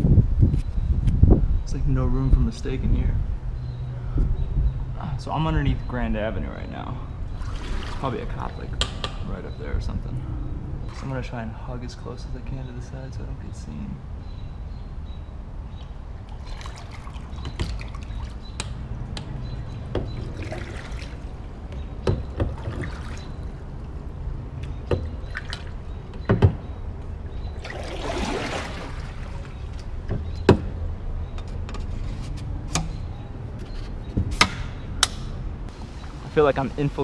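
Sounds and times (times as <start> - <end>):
paddle splashing water: 7.4 - 8.8, 16.2 - 26.0, 27.4 - 30.0
paddle knocking kayak hull: 16.4 - 23.6.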